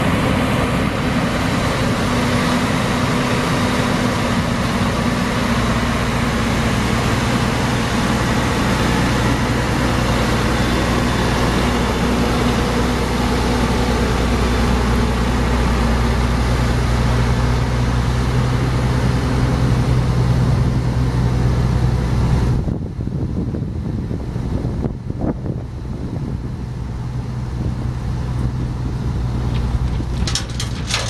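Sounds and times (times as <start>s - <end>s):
diesel truck engine running: 0.0s - 24.6s, 25.7s - 31.0s
wind noise on microphone: 22.0s - 31.0s.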